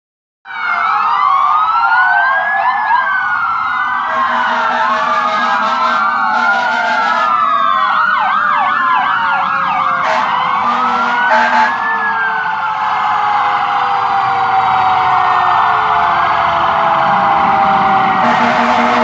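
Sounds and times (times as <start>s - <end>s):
emergency sirens wailing: 0.4s - 19.0s
short horn blasts: 4.3s - 7.2s, 18.2s - 19.0s.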